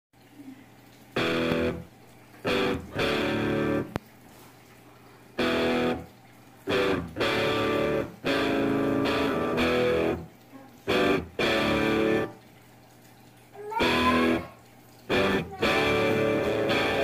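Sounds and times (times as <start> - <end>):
guitar chords: 1.2 - 4.0, 5.4 - 10.3, 10.9 - 12.4, 13.8 - 14.5, 15.1 - 17.0.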